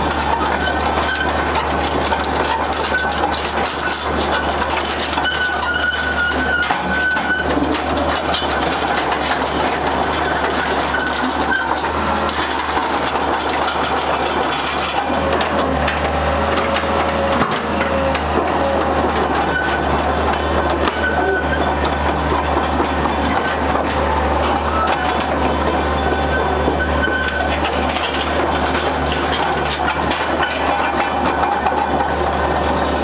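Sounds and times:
diesel engine running: 0.0s - 33.0s
track links clanking: 0.0s - 33.0s.

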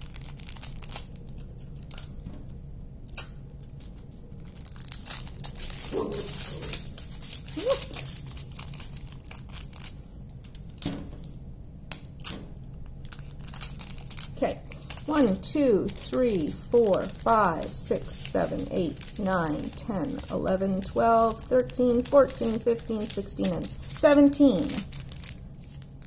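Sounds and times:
plastic bags crinkling: 0.0s - 2.3s, 3.1s - 11.3s, 11.9s - 26.0s.

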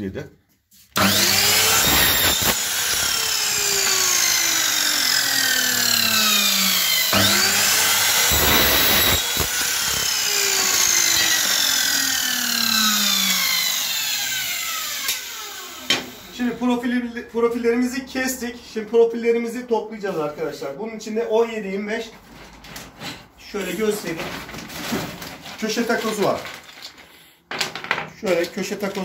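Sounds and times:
mitre saw motor whining: 1.0s - 16.4s
saw blade cutting metal: 1.0s - 16.4s.

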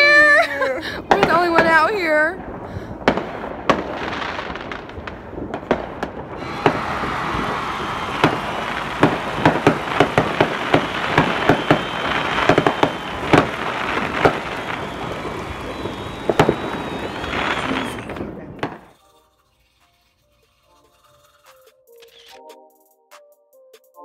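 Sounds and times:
fireworks crackling: 0.0s - 20.3s
fireworks bangs: 1.0s - 19.1s.

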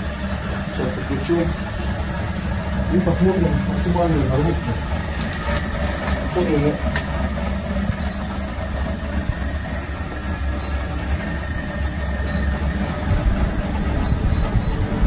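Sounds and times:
electric motor rumbling and whirring: 0.0s - 15.0s.

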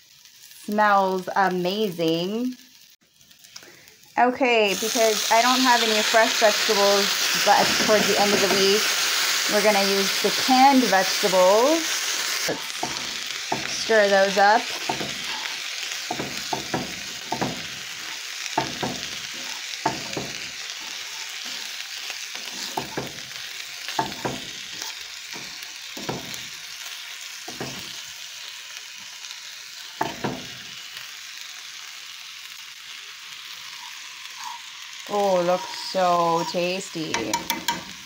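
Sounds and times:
vegetables sizzling in a skillet: 0.0s - 38.0s
utensil scraping and knocking pan: 12.6s - 14.0s, 14.7s - 21.8s, 22.4s - 23.2s, 23.9s - 26.4s, 27.5s - 27.9s, 35.4s - 38.0s.

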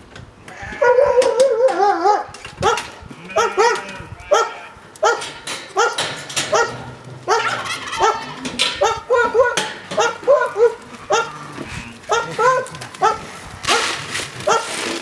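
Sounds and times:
goats and sheep bleating: 0.5s - 1.4s, 2.7s - 5.9s, 6.6s - 13.4s.

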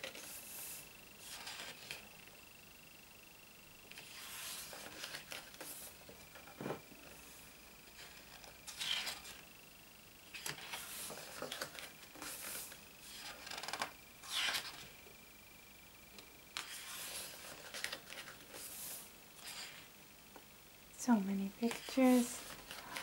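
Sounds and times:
paper pages being turned: 0.0s - 2.0s, 3.9s - 6.5s, 7.9s - 9.4s, 10.3s - 14.9s, 16.6s - 19.9s, 21.6s - 23.0s.

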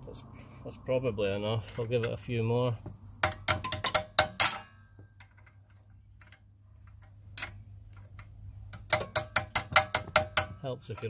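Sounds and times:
spanner clinking on bolt: 3.2s - 11.0s.

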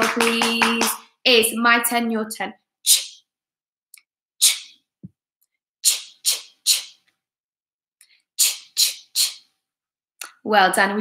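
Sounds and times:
woman saying breathy bursts: 4.4s - 4.8s, 5.8s - 7.0s, 8.4s - 9.5s.

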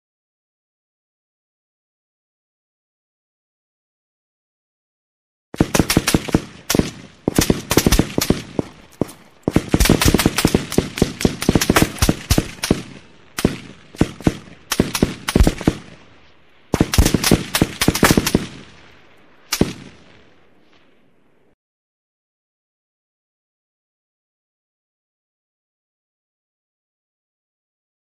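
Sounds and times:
rifle automatic gunfire: 5.6s - 16.0s, 16.7s - 18.8s.

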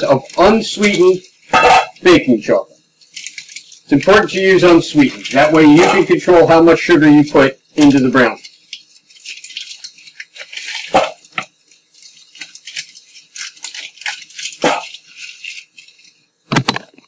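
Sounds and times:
wrapper crinkling: 0.0s - 7.0s, 7.8s - 16.5s.

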